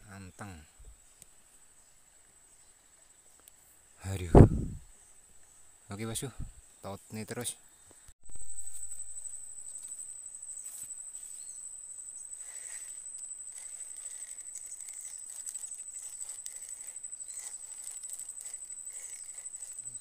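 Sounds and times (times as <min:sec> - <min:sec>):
insect trilling high-pitched: 0:08.2 - 0:20.0
low chirping: 0:08.2 - 0:20.0.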